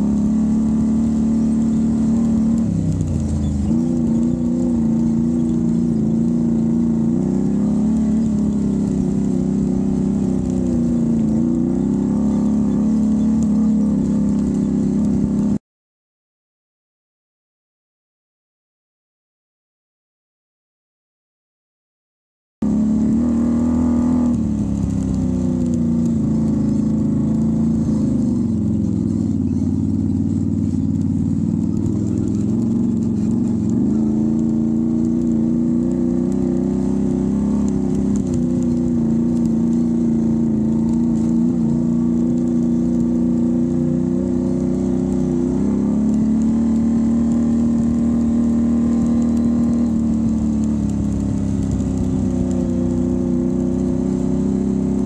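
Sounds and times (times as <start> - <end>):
atv engine revving: 0.0 - 15.6, 22.6 - 55.0.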